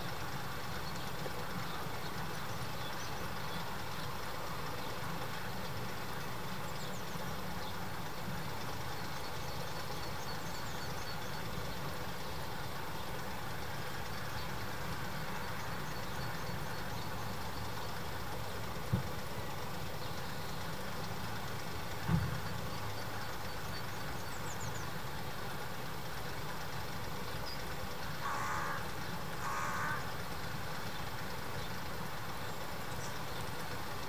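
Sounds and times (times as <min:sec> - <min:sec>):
crow cawing: 0:28.2 - 0:30.2.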